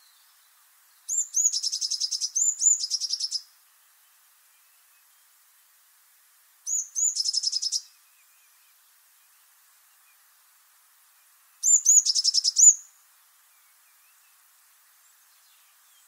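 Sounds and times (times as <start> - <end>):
bird singing high notes and trill: 1.1 - 3.5, 6.7 - 7.9, 11.6 - 12.9.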